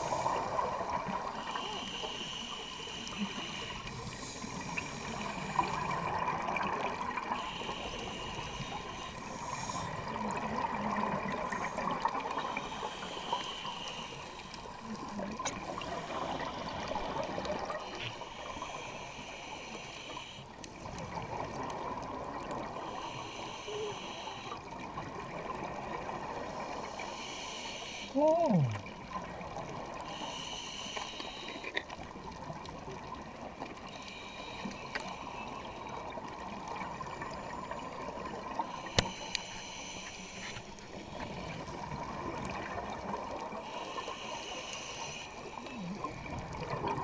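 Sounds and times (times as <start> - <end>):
regulator hissing inhalations: 1.4 - 6.0, 7.4 - 10.0, 11.4 - 15.1, 17.8 - 20.5, 22.8 - 24.6, 26.4 - 28.2, 30.1 - 31.7, 38.2 - 41.7, 43.6 - 45.7
exhaled bubbles underwater: 3.8 - 13.4, 28.2 - 30.1, 40.7 - 44.4, 45.4 - 47.0.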